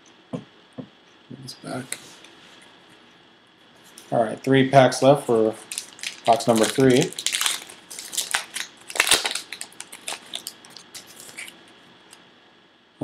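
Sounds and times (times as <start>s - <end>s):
wrapper tearing and crinkling: 5.6s - 11.6s.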